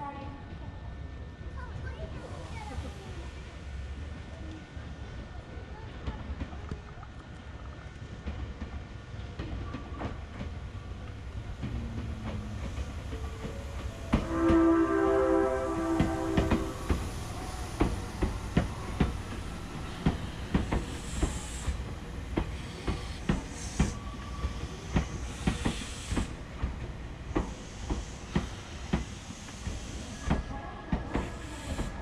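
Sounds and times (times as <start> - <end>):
held pitched tone: 13.1 - 17.7
air hiss: 14.2 - 30.5, 31.2 - 32.0
train wheels clacking over rail joints: 15.9 - 32.0.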